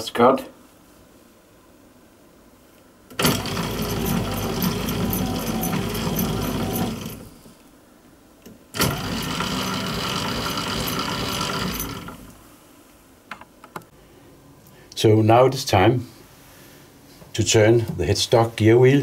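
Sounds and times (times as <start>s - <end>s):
lathe cutting gear teeth: 3.2s - 7.3s, 8.8s - 12.4s.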